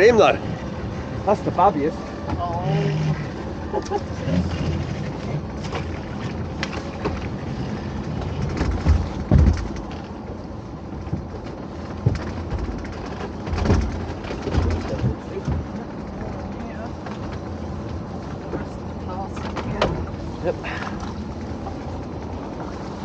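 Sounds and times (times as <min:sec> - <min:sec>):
boat engine running: 0:00.0 - 0:23.0
knocks and clunks: 0:08.0 - 0:10.2, 0:11.0 - 0:16.4.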